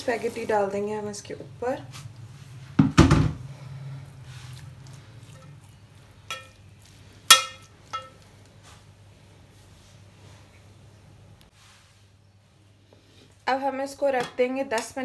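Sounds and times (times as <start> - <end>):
spoon clinking on steel pot: 6.3 - 6.7, 7.3 - 8.3.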